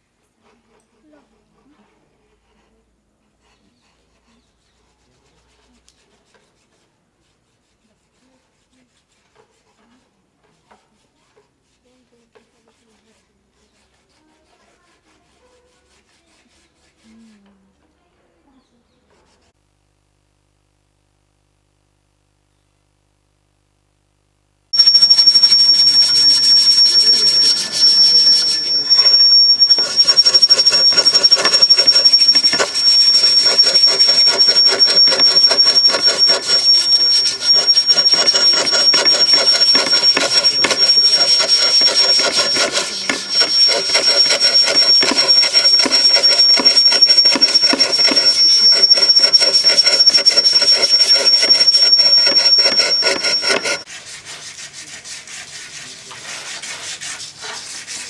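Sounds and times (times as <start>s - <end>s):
thin steady high tone: 24.8s - 53.9s
fretsaw rasping through wood: 24.8s - 58.0s.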